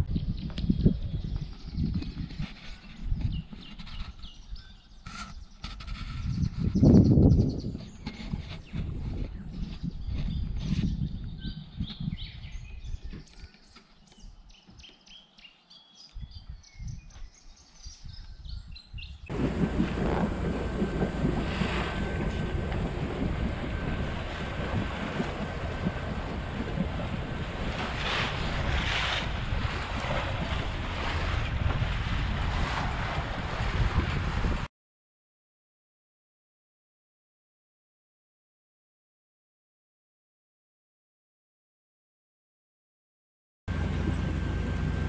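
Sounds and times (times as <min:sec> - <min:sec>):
wind noise on microphone: 0:00.0 - 0:14.9, 0:16.0 - 0:34.7, 0:43.7 - 0:45.0
sea waves rushing: 0:19.3 - 0:34.7.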